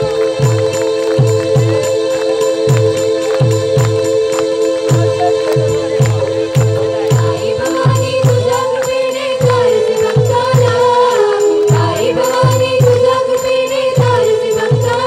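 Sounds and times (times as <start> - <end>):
chorus of voices singing: 0.0 - 15.0
low drum beat: 4.9 - 8.6.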